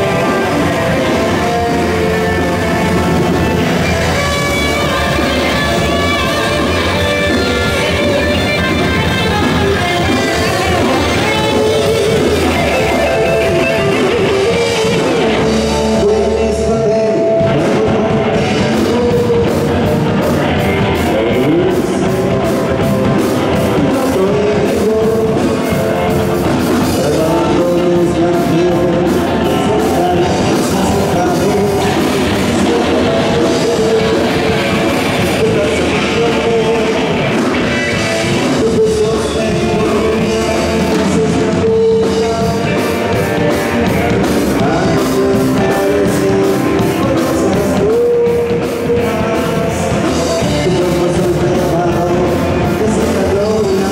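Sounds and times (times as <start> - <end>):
drum kit: 0.0 - 53.9
electric guitar: 0.0 - 53.9
keyboard: 0.0 - 53.9
man singing: 0.0 - 53.9.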